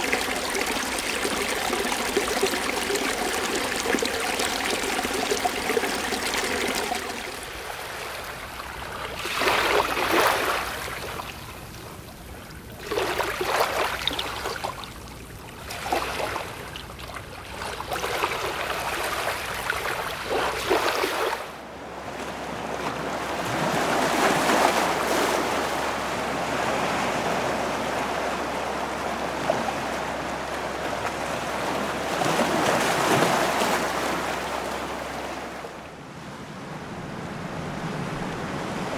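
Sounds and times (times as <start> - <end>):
stream rushing over rocks: 0.0 - 8.5
waves washing into a cove: 0.0 - 14.9, 15.5 - 16.8, 17.4 - 38.9
surf along a rocky coast: 0.0 - 38.9.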